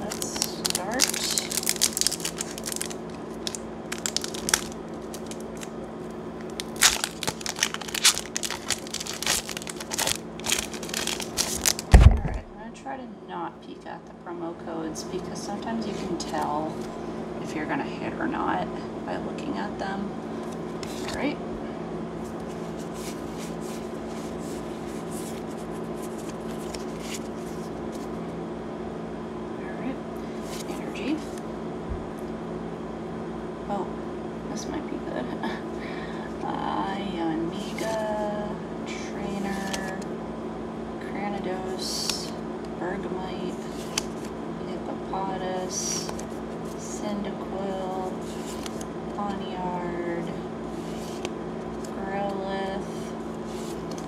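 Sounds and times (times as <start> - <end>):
foil wrapper crinkling: 0.0 - 5.8, 6.4 - 12.4
low electrical hum: 0.0 - 54.0
cards sliding and rubbing: 22.3 - 28.1, 48.2 - 48.8, 50.7 - 51.3, 52.9 - 54.0.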